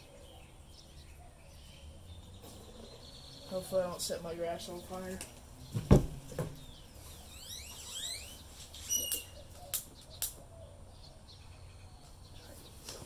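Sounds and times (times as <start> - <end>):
birds chirping: 0.0 - 13.0.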